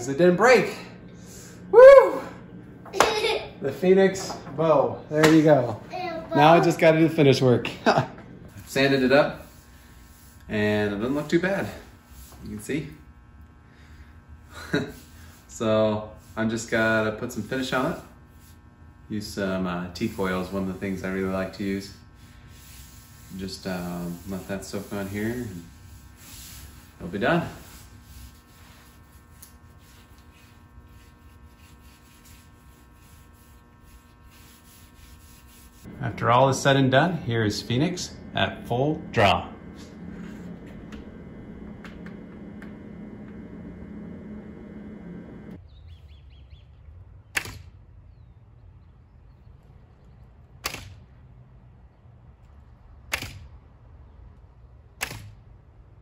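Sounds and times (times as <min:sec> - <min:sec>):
low steady hum: 0:00.0 - 0:56.0
gloved hands rubbing wood: 0:07.9 - 0:10.9, 0:20.0 - 0:45.5.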